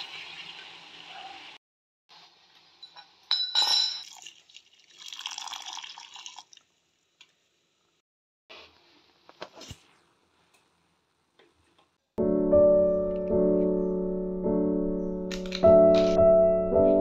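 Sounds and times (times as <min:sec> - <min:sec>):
liquid splash with clink: 0:02.8 - 0:06.6
milk pouring into pan: 0:04.1 - 0:06.6.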